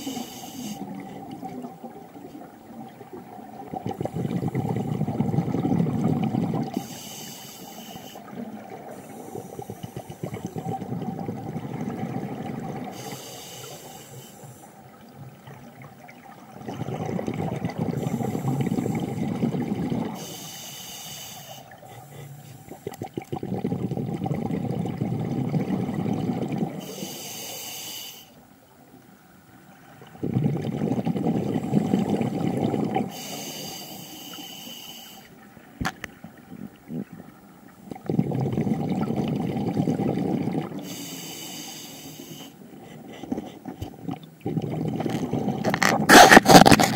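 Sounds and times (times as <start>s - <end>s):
regulator inhalation hiss: 0.0s - 0.9s, 6.8s - 8.3s, 12.9s - 14.8s, 18.0s - 19.2s, 20.2s - 22.9s, 26.8s - 28.4s, 33.1s - 35.4s, 40.8s - 42.7s
exhaled bubbles rumbling: 0.0s - 6.8s, 8.2s - 13.0s, 14.8s - 20.3s, 21.7s - 26.9s, 29.8s - 33.3s, 35.7s - 41.0s, 43.0s - 46.9s
faint steady hum: 0.0s - 46.9s.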